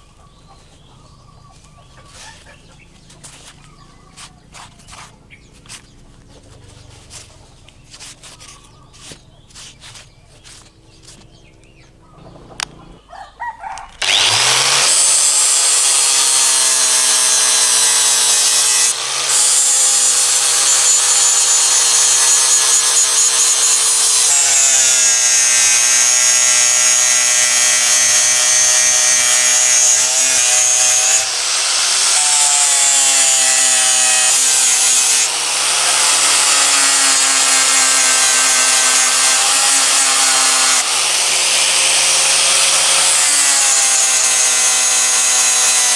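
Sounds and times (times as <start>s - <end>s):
angle grinder grinding metal: 14.0s - 45.9s.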